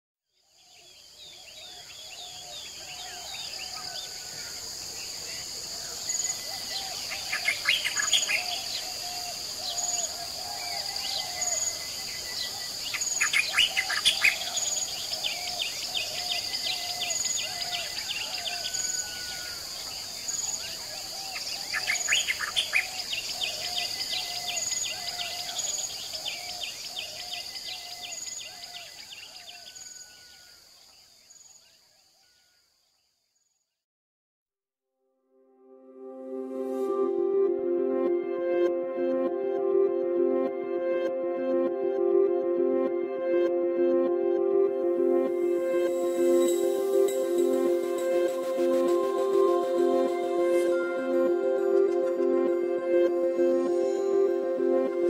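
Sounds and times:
high-pitched insect drone: 3.0 - 30.2, 45.0 - 55.0
birds calling and trilling: 5.8 - 30.0.

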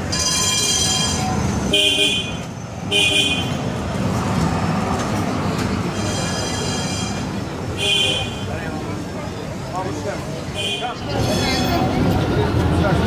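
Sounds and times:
tram wheel squeal: 0.0 - 2.9, 5.5 - 7.7, 10.8 - 12.7
tram warning toots: 0.0 - 9.1, 10.4 - 12.6
tram running noise: 0.0 - 13.0.

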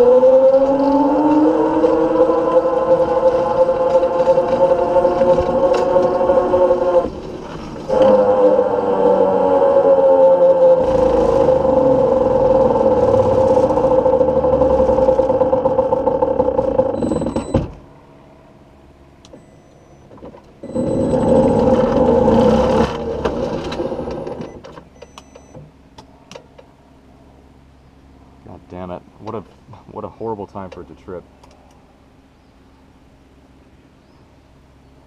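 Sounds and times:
electric motor whining: 0.0 - 7.2, 7.9 - 17.8, 20.6 - 24.6
road and wind noise: 0.0 - 35.0.

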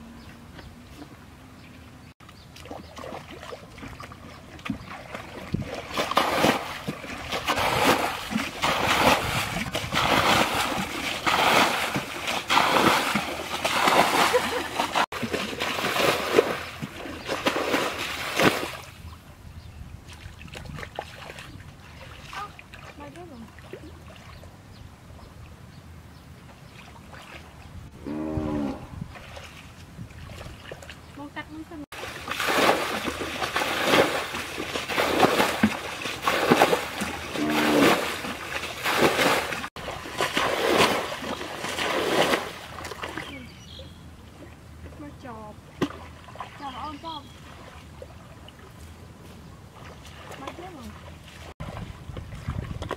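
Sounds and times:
hands splashing in muddy water: 2.5 - 18.9, 31.9 - 43.4.

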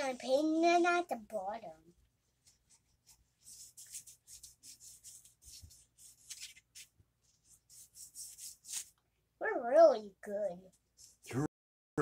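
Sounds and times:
paintbrush scrubbing on paper: 1.9 - 9.0.

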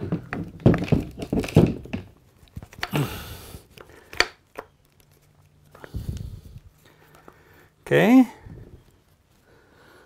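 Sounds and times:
metal and plastic pieces clattering: 0.0 - 3.0.

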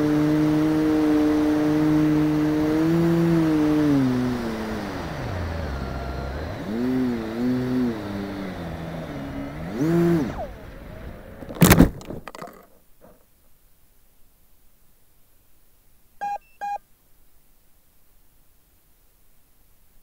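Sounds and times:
electric motors and propellers whining: 0.0 - 11.8
plane crashing into grass: 11.4 - 12.5.

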